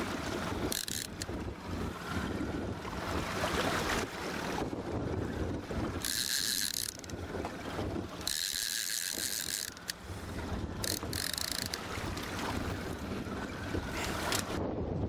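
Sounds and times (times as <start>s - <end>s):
fishing reel drag buzzing: 0.4s - 2.3s, 5.9s - 12.3s.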